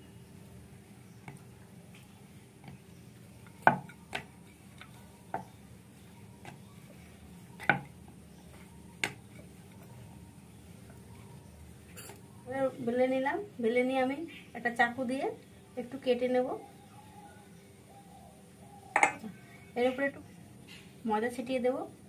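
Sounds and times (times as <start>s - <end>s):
rolling pin knocking on wooden board: 7.6s - 7.9s.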